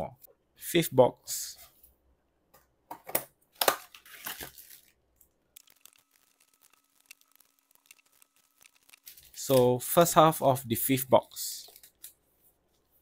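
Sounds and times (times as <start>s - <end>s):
plastic tearing and crinkling: 3.6s - 9.7s.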